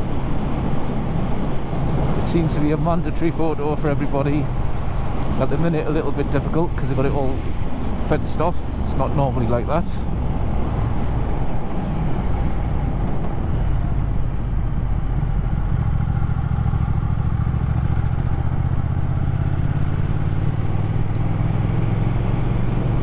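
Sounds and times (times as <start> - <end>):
wind rush on microphone: 0.0 - 23.0
motorcycle engine running: 14.8 - 22.3.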